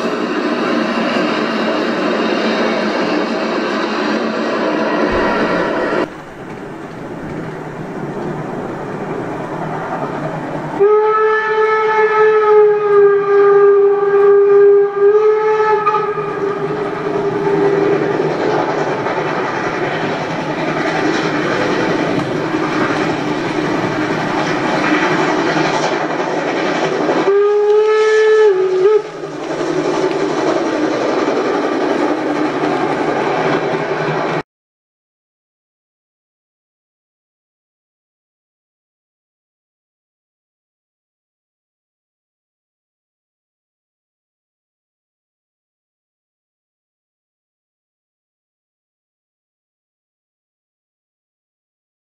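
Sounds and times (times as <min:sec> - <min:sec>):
model train rolling rumble: 0:05.1 - 0:12.3, 0:16.4 - 0:34.4
train horn blast: 0:10.7 - 0:17.6, 0:27.2 - 0:29.2.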